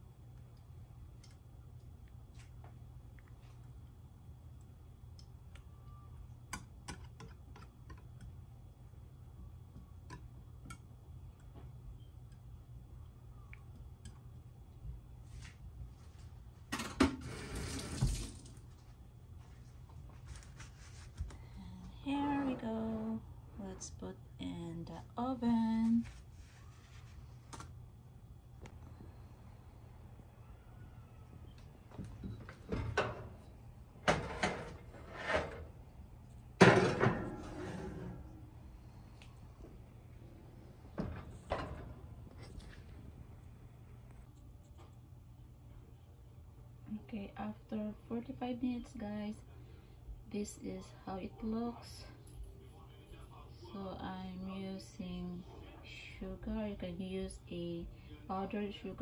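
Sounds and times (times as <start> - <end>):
water running into a sink: 17.4 - 18.6
oven door opening: 34.0 - 35.8, 36.6 - 38.3, 40.9 - 42.4.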